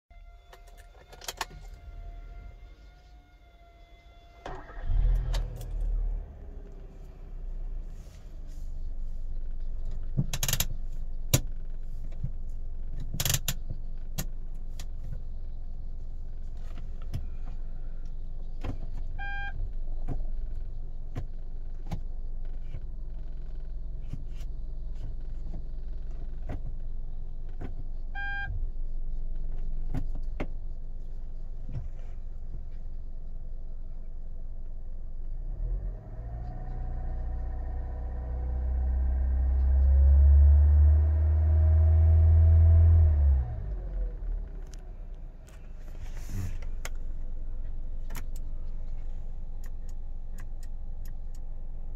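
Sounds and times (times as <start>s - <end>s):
car engine cranking and idling: 0.2s - 51.9s
short beeps: 19.2s - 19.6s, 28.2s - 28.5s.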